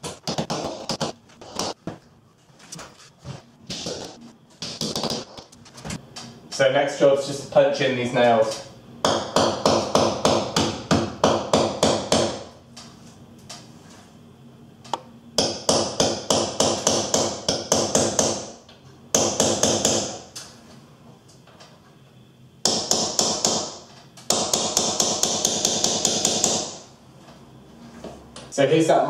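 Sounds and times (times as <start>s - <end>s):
hammer tapping nail punch: 9.0s - 12.5s, 15.4s - 18.5s, 19.1s - 20.2s, 22.6s - 26.8s.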